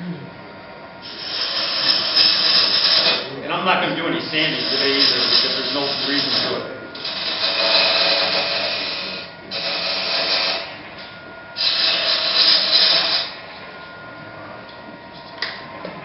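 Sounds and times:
lathe whine: 0:00.0 - 0:16.0
lathe tool cutting wood: 0:01.0 - 0:11.0, 0:11.6 - 0:13.7.

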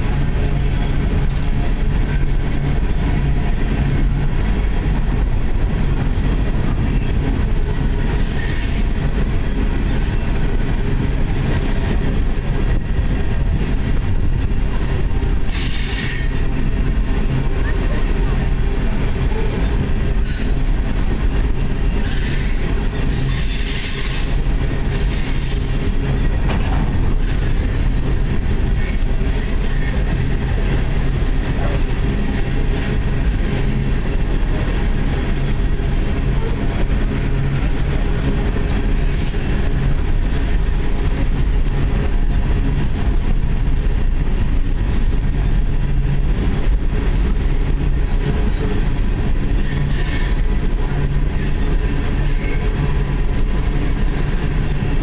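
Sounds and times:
train wheels rumbling on rails: 0:00.0 - 0:55.0
high-pitched wheel squeal: 0:15.5 - 0:16.5, 0:20.2 - 0:20.7, 0:27.2 - 0:30.0.

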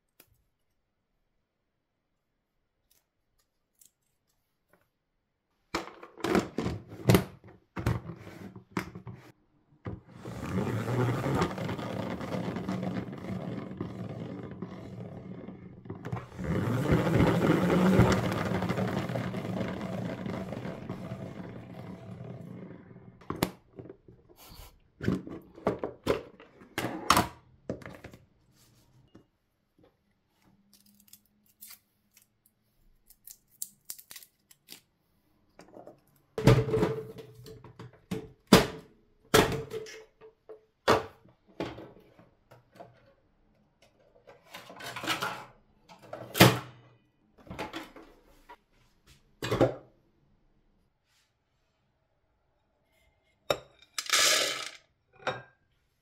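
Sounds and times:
salad spinner whirring: 0:16.2 - 0:23.0.

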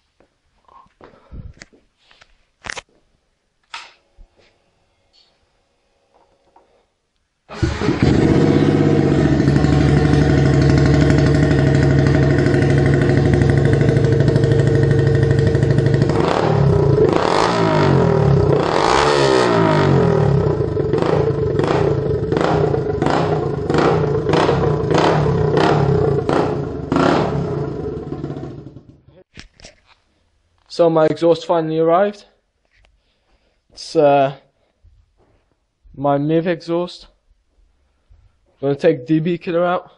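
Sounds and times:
motorcycle engine idling and revving: 0:07.6 - 0:29.1.

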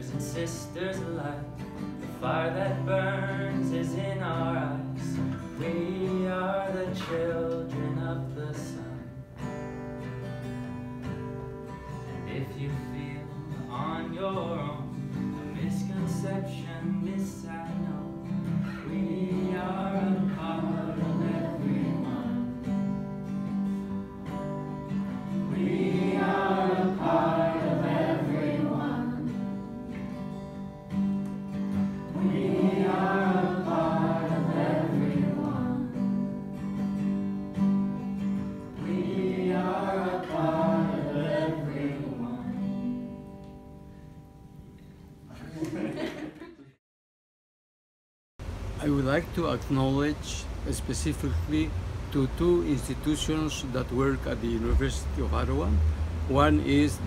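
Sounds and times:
strummed acoustic guitar: 0:00.0 - 0:45.3.

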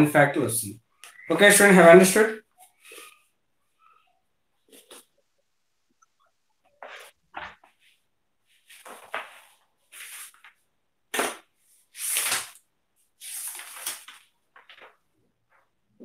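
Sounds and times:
paper rustling: 0:06.8 - 0:10.6, 0:11.2 - 0:12.6, 0:13.2 - 0:15.7.

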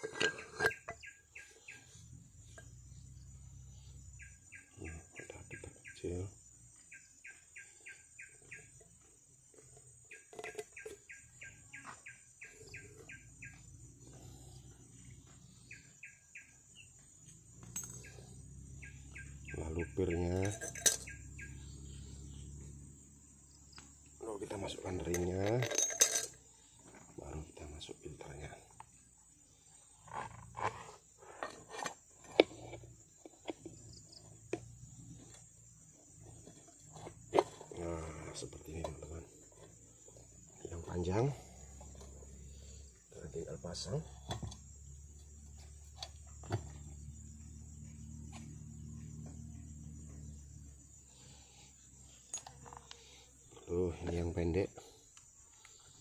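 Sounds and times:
metal bowl clicks and knocks: 0:00.0 - 0:01.0
metal parts clinking: 0:00.0 - 0:01.1, 0:20.4 - 0:21.2, 0:25.1 - 0:26.5
insect chirps: 0:00.0 - 0:56.0
insect drone: 0:00.0 - 0:56.0.

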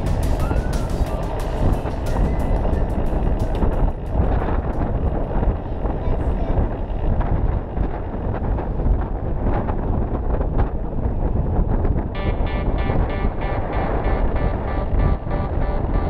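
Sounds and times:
steady pitched tones: 0:00.0 - 0:06.0, 0:12.1 - 0:16.0
wind buffeting microphone: 0:00.0 - 0:16.0.

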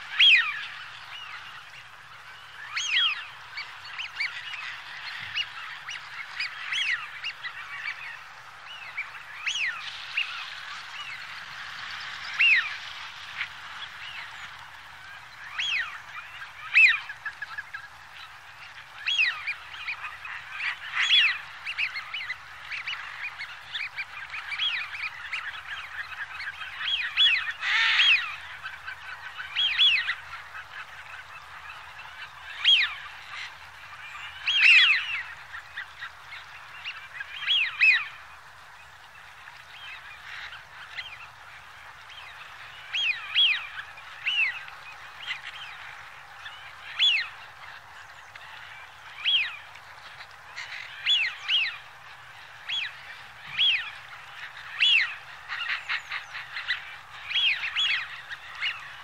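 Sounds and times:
ducks whistling calls: 0:00.0 - 0:38.7, 0:39.5 - 0:59.0.

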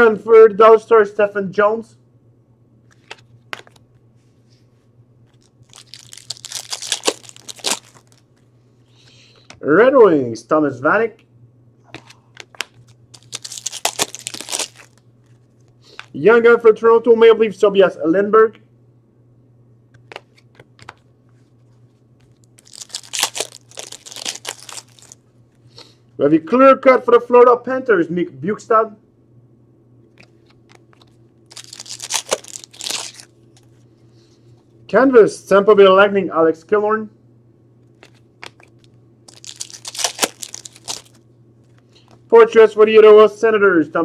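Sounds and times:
foil wrapper crinkling and tearing: 0:05.3 - 0:08.4, 0:12.0 - 0:16.2, 0:22.2 - 0:25.2, 0:30.1 - 0:33.8, 0:37.9 - 0:41.2
trading cards clicking: 0:11.9 - 0:15.0, 0:30.1 - 0:33.2, 0:37.9 - 0:41.2.

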